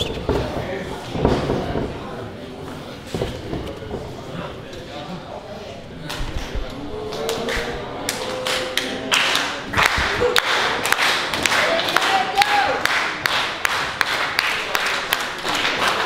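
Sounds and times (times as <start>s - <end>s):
crowd clapping rhythmically: 7.1s - 16.0s
crowd cheering: 7.2s - 16.0s.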